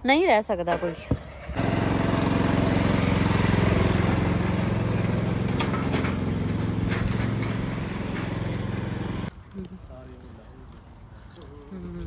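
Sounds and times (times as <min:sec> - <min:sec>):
ride-on mower engine running: 0:01.4 - 0:09.3.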